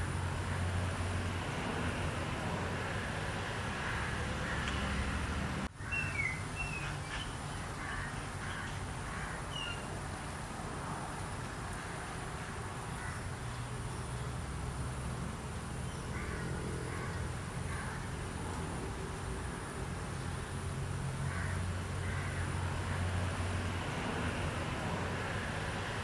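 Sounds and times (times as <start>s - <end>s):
bird chirps: 5.8s - 7.6s.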